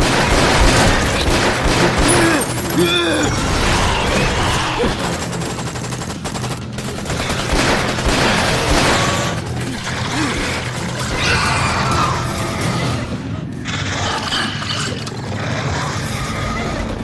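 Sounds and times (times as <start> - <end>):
gunshots in fast succession: 0.0 - 14.1
film music score: 0.0 - 17.0.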